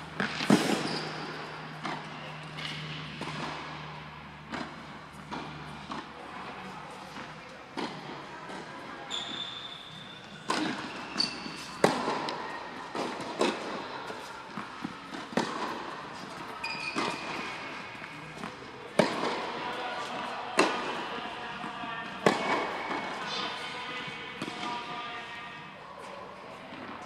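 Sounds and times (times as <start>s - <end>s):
racket striking tennis ball: 0.2s - 3.8s, 10.4s - 23.6s
tennis ball bouncing: 0.2s - 6.1s, 10.3s - 23.2s
shoe squeaks: 0.7s - 1.4s, 9.0s - 12.6s, 16.5s - 17.6s.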